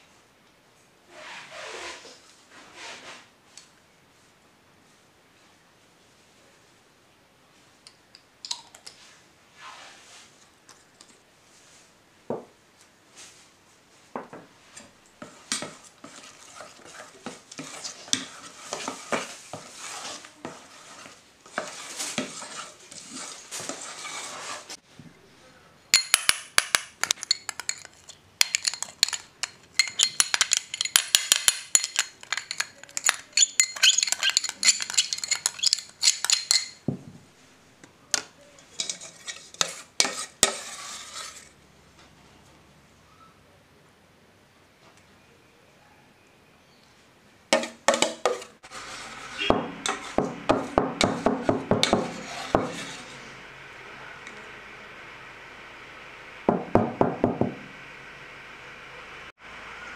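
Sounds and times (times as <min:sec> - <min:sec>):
spoon stirring batter in steel pot: 0:14.8 - 0:24.8, 0:27.0 - 0:36.9, 0:38.2 - 0:41.6, 0:47.6 - 0:53.4
spoon clinking on glass bowls: 0:26.0 - 0:36.8.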